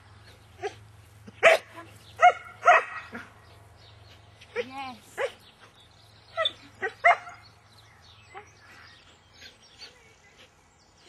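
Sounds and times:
dog barking: 1.4 - 3.3, 6.8 - 7.4.

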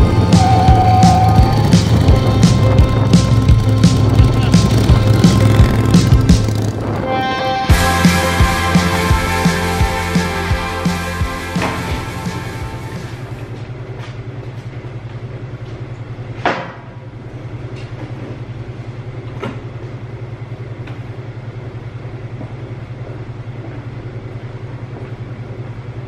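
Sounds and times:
low pulsing hum: 0.0 - 17.7.

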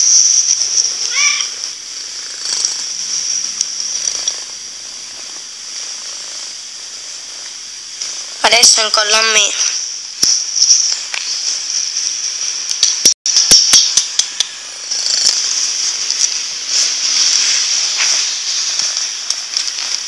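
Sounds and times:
kitten purring: 0.0 - 8.4
sharp clicks: 10.2 - 20.0
rustling: 14.5 - 20.0.

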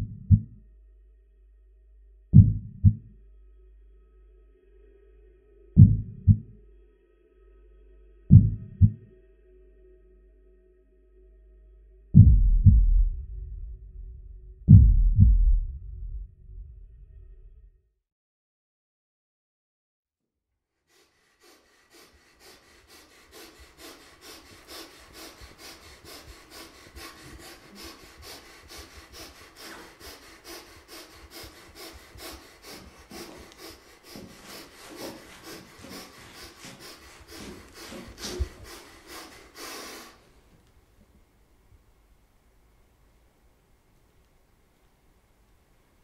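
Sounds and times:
person breathing hard: 2.4 - 9.2, 20.8 - 40.6.

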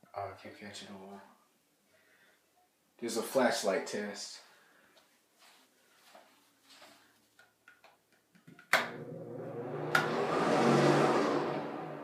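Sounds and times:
toilet water rushing: 8.9 - 12.0.

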